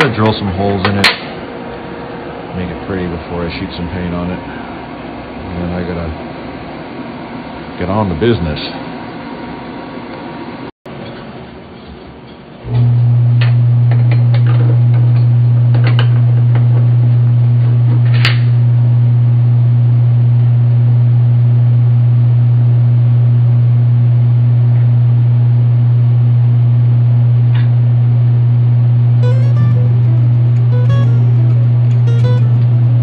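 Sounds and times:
welding machine humming: 0:29.3 - 0:33.0.

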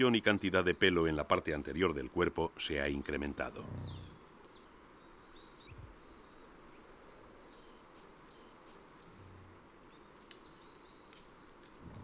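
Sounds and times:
small birds chirping: 0:00.0 - 0:12.0
soft steady hiss: 0:00.0 - 0:12.0
brief low hum: 0:03.6 - 0:04.2.

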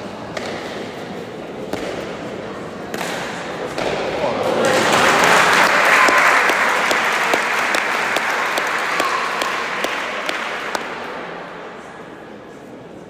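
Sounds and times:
spectators applauding: 0:04.6 - 0:10.8
person clapping steady beat: 0:05.1 - 0:11.0.

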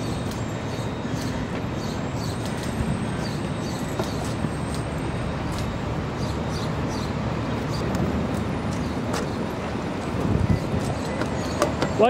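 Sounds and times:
city street traffic: 0:00.0 - 0:12.0.

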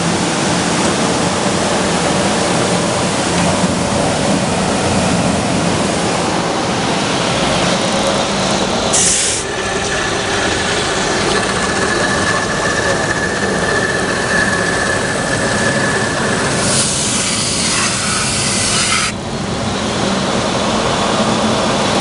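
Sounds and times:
short sharp hiss: 0:08.9 - 0:09.5
sanding machine running: 0:09.0 - 0:19.2.

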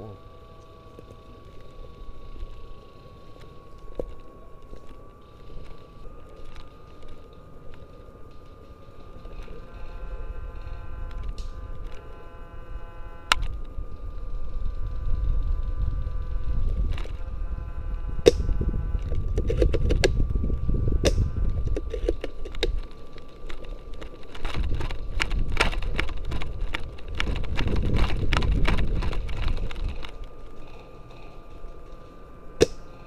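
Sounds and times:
camera handling rumble: 0:15.3 - 0:17.4, 0:18.2 - 0:32.0
footsteps on dry twigs: 0:21.1 - 0:30.8.

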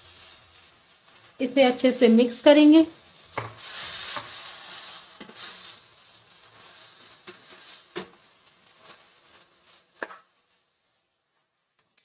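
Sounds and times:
spatula scraping in metal pan: 0:03.1 - 0:10.2.

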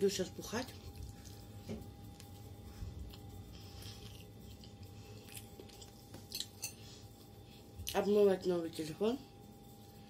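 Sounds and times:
faint hum: 0:00.0 - 0:10.0
person chewing food: 0:00.6 - 0:08.0.

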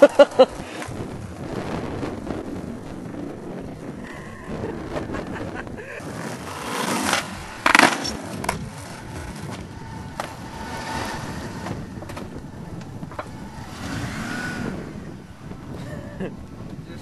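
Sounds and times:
skateboard wheels rolling on tarmac: 0:00.0 - 0:17.0
skateboard hitting ground: 0:06.0 - 0:11.0, 0:11.6 - 0:12.4.

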